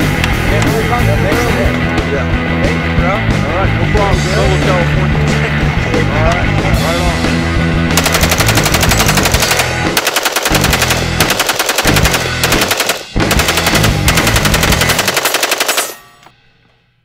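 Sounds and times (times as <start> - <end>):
rifle firing rapid strings of shots: 8.0 - 16.0.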